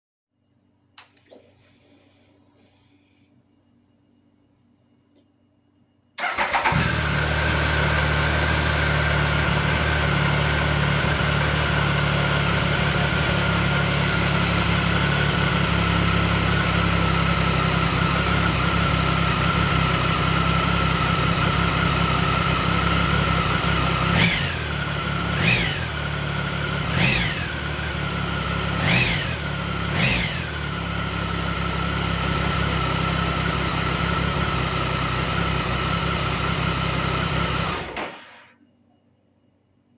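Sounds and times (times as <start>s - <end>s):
motorcycle engine idling: 6.2s - 37.6s.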